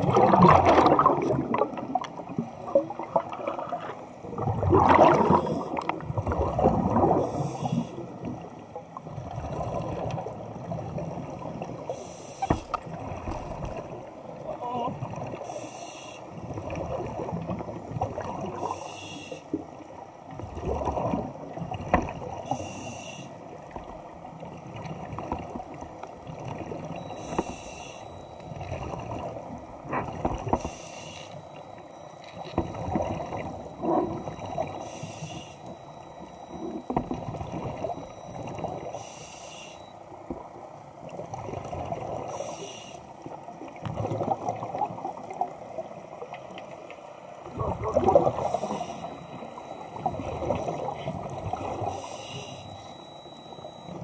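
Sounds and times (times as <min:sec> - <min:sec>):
bubbling exhalations: 0:00.0 - 0:02.0, 0:03.0 - 0:07.2
regulator inhale hiss: 0:07.2 - 0:08.0, 0:11.9 - 0:12.6, 0:15.4 - 0:16.3, 0:18.6 - 0:19.6, 0:22.5 - 0:23.4, 0:27.2 - 0:28.1, 0:30.6 - 0:31.4, 0:34.8 - 0:35.7, 0:38.9 - 0:39.8, 0:42.3 - 0:43.1, 0:48.4 - 0:49.2, 0:51.9 - 0:52.8.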